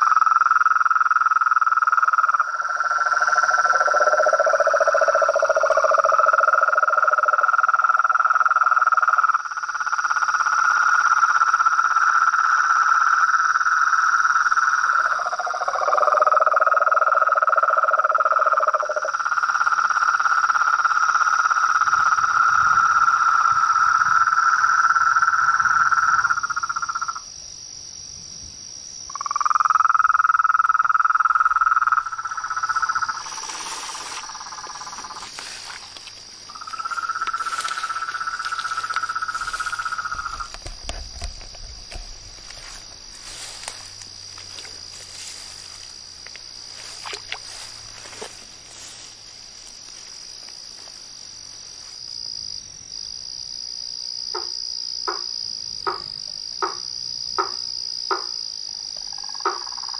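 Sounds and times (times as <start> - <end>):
frog clicking calls: 0.0 - 27.2, 29.1 - 43.0, 54.3 - 59.9
toad trilling: 0.0 - 27.2, 29.1 - 49.0
crickets droning: 0.0 - 59.9.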